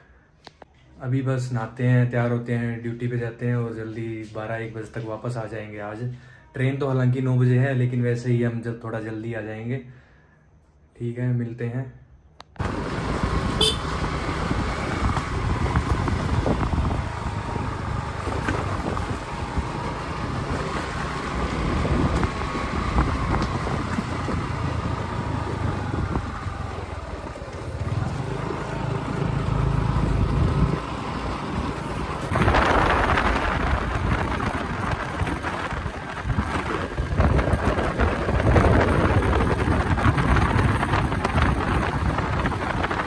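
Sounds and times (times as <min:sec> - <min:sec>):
road traffic: 0:12.3 - 0:43.0.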